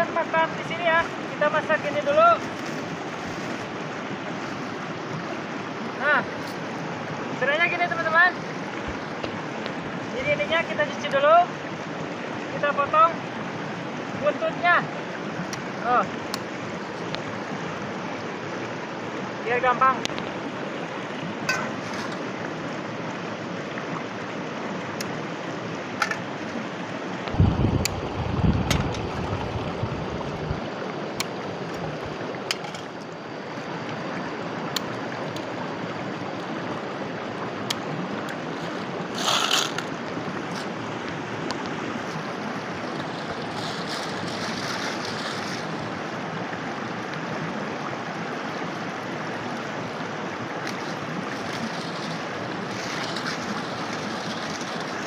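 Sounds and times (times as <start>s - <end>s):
stream running over rocks: 0.0s - 55.0s
wind rumble on microphone: 27.2s - 30.9s.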